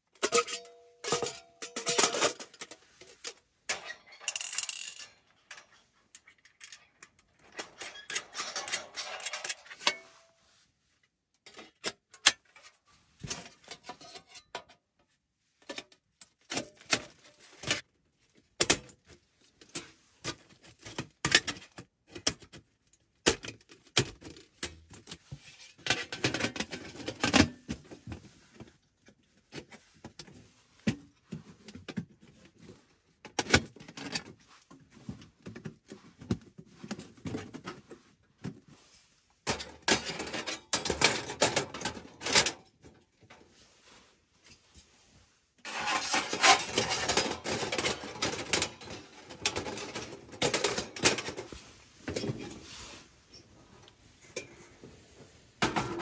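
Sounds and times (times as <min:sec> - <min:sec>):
metal panels clinking together: 0:06.5 - 0:10.1
metal panels scraping: 0:07.3 - 0:10.3, 0:45.6 - 0:53.2.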